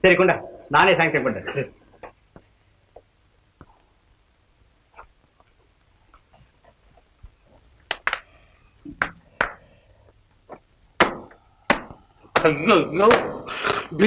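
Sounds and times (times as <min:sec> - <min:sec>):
sharp knocks with ringing tone: 0:11.0 - 0:13.5.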